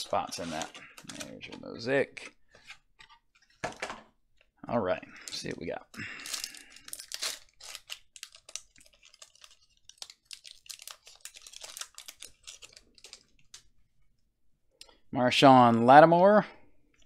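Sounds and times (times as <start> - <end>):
foil wrapper crinkling: 6.0 - 13.6.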